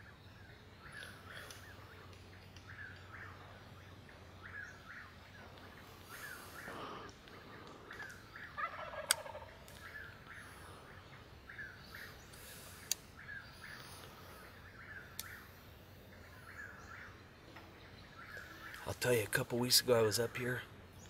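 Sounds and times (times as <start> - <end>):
birds calling: 0.0 - 21.0
distant turkey gobbling: 4.3 - 15.6.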